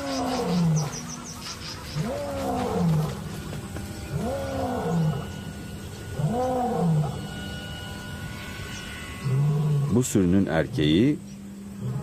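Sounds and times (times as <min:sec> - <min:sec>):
lion roaring: 0:02.0 - 0:03.3, 0:04.1 - 0:05.4, 0:06.1 - 0:07.2, 0:11.8 - 0:12.0.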